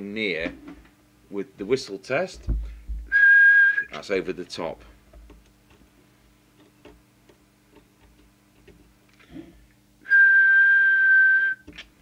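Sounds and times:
low steady hum: 0.0s - 12.0s
single-pitch whistle: 3.1s - 3.9s, 10.1s - 11.6s.

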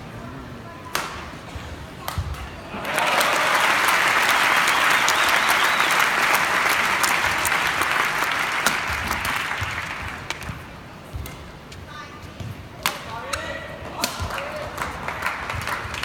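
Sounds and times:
crowd applauding: 2.7s - 10.6s, 14.3s - 16.0s
racket hitting shuttlecock: 8.6s - 9.7s.

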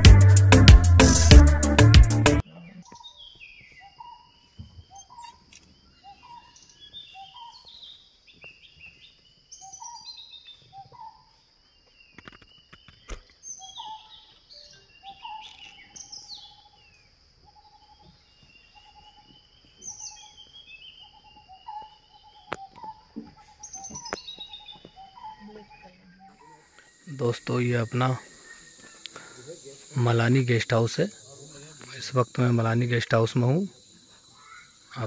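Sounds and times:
high insect drone: 9.0s - 35.0s
birds chirping falling notes: 17.7s - 31.1s.

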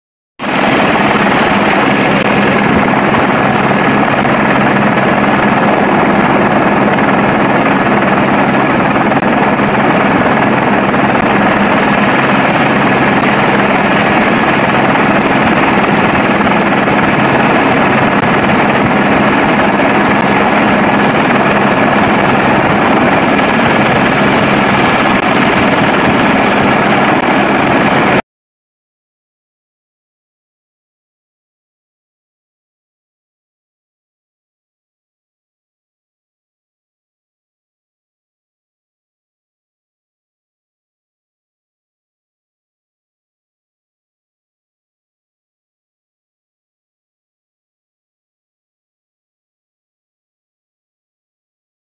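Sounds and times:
helicopter engine and rotor noise: 0.4s - 28.2s.

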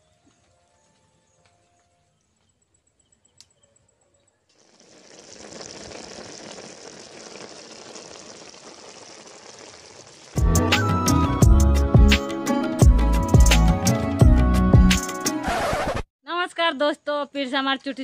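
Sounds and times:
curry bubbling in a pan: 4.6s - 10.4s.

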